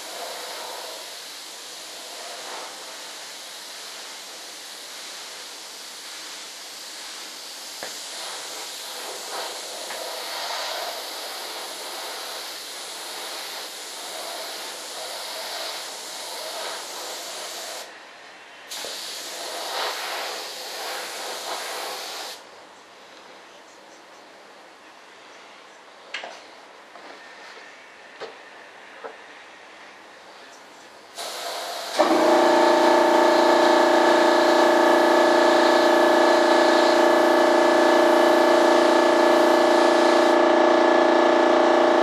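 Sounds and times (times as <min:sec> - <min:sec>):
paint spray gun hissing: 0:00.0 - 0:17.9, 0:18.7 - 0:22.4, 0:31.2 - 0:42.0.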